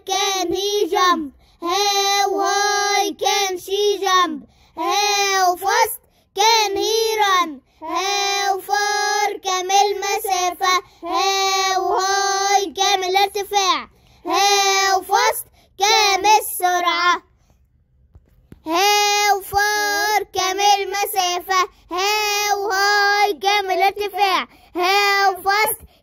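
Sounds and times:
child singing: 0.0s - 17.2s, 18.6s - 26.0s.

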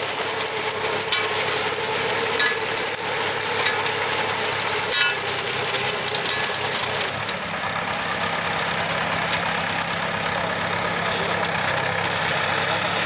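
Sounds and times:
tractor engine running: 0.0s - 13.0s.

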